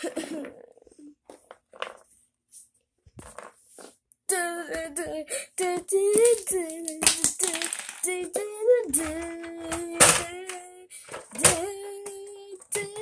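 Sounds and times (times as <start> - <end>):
person singing wordless tune: 4.3 - 13.0.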